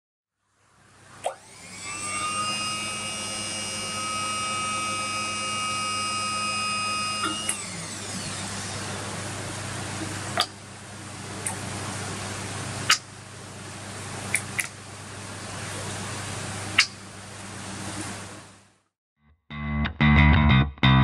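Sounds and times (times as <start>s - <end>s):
hose crimper whining: 1.4s - 9.2s.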